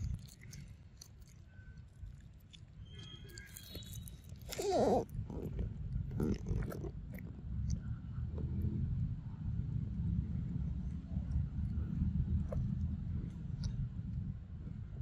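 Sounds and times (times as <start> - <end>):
monkey chewing and biting: 0.0 - 7.7.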